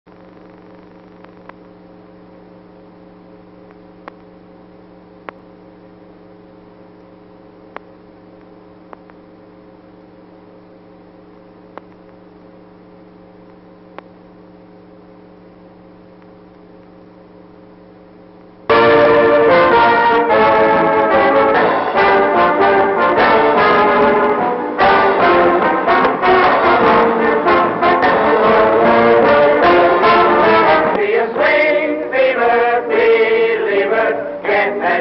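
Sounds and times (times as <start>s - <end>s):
steady electrical hum: 0.1s - 35.0s
scattered clicks: 0.3s - 1.7s, 3.6s - 4.4s, 7.7s - 9.2s, 11.7s - 12.3s, 13.4s - 14.2s.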